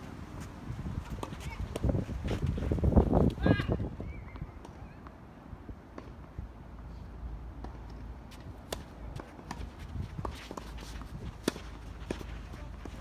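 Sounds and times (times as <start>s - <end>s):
low wind rumble: 0.0s - 4.7s
footsteps scuffing on court: 8.3s - 13.0s
tennis ball struck by rackets: 8.6s - 13.0s.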